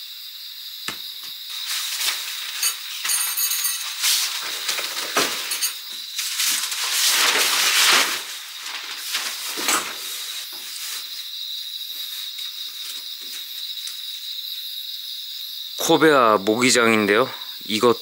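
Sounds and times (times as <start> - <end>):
crickets chirring: 0.0 - 18.0
mosquito net rustling and swishing: 1.4 - 14.4.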